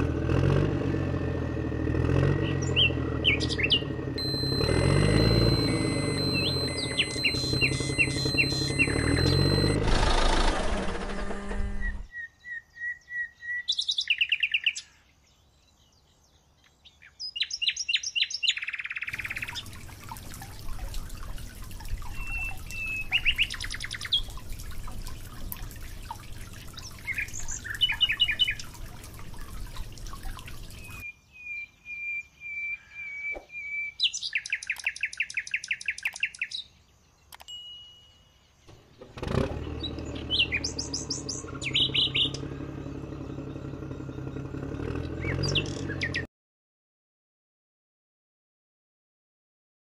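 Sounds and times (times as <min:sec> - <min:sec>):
engine running: 0:00.0 - 0:12.1, 0:19.1 - 0:31.0, 0:38.7 - 0:46.3
birds chirping trills: 0:02.1 - 0:09.8, 0:10.4 - 0:46.3
water pouring into trough: 0:19.1 - 0:31.0.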